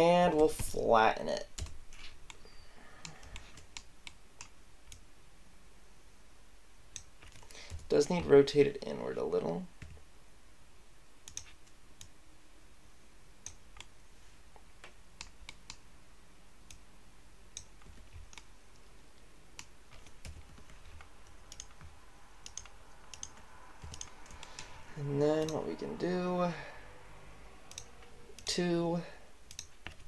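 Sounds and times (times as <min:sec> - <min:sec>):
faint steady hum: 0:00.0 - 0:30.0
mouse and keyboard clicks: 0:11.3 - 0:12.1, 0:19.6 - 0:24.8, 0:27.7 - 0:28.5, 0:29.5 - 0:30.0.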